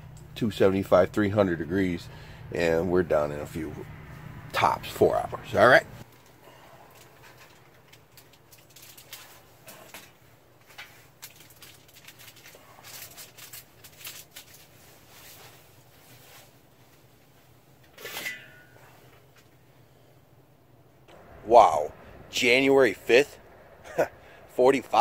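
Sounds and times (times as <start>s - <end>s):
aluminium foil crinkling: 6.9s - 15.4s.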